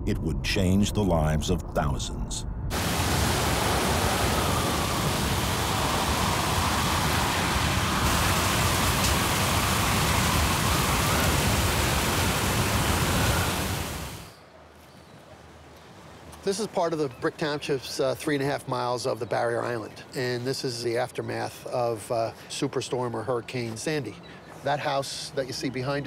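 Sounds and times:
hurricane wind and rain roar: 2.7 - 14.4.

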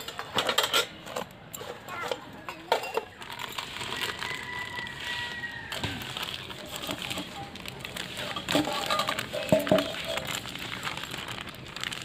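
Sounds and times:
plastic packet crinkling: 3.1 - 12.0.

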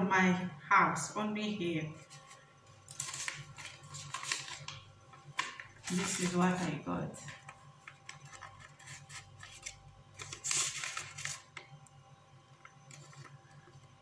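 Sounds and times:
banknotes rustling: 2.0 - 11.7, 12.8 - 13.8.

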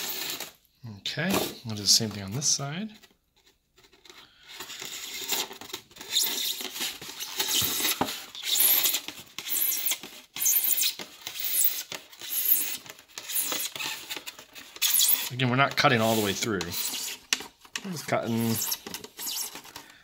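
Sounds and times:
knife cutting styrofoam: 0.0 - 0.6, 4.7 - 19.7.

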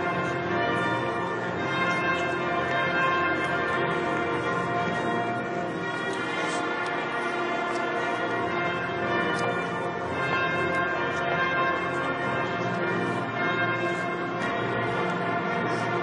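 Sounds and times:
church bells ringing: 0.0 - 16.0.

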